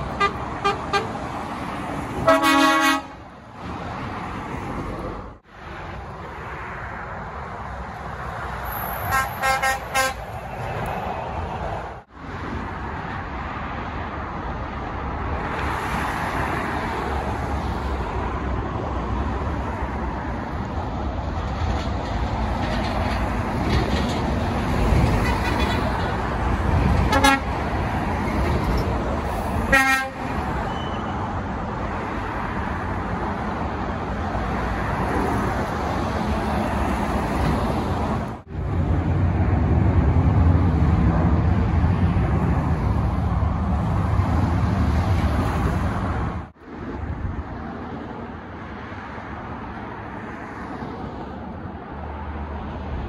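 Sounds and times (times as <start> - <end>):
horns tooting: 0.0 - 1.2, 2.2 - 3.2, 9.0 - 10.4, 27.1 - 27.6, 29.6 - 31.3
lorries passing on road: 0.0 - 53.0.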